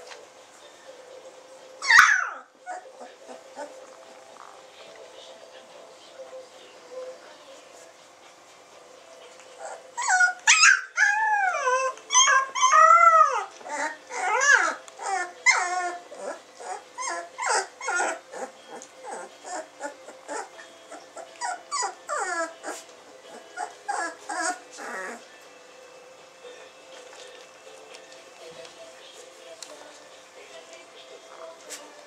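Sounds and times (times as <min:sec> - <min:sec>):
puppies whining and yelping: 0:01.8 - 0:04.3, 0:09.3 - 0:25.4.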